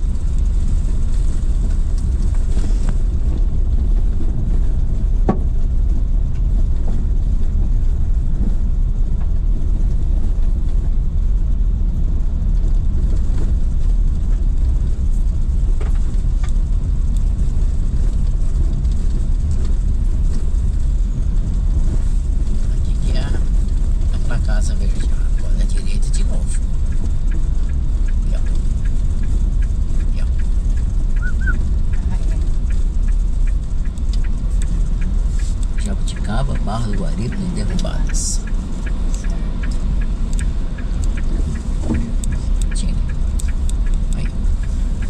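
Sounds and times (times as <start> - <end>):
car tyres and engine rumble: 0.0 - 45.0.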